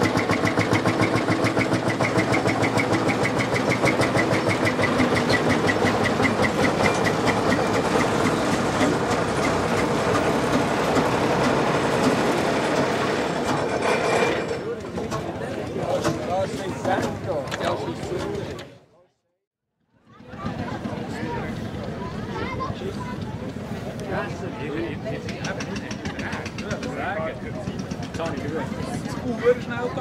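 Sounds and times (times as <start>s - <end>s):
diesel engine running at low revs: 0.0s - 14.4s.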